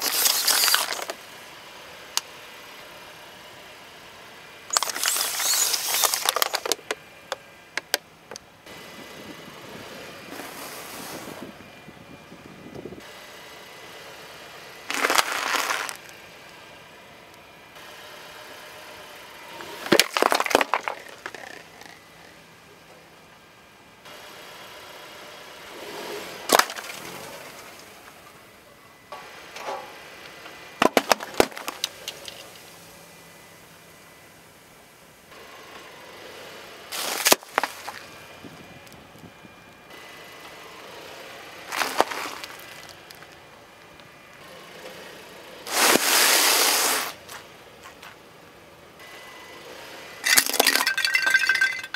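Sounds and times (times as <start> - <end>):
plastic bottles bursting under tyre: 0.0 - 1.2, 4.7 - 6.9, 14.9 - 16.0, 19.8 - 22.0, 26.5 - 27.1, 30.8 - 32.3, 50.2 - 51.9
biscuits crunching under tyre: 14.9 - 16.2, 19.6 - 22.2, 36.9 - 38.2, 41.7 - 43.4
liquid spraying hiss: 45.7 - 47.2.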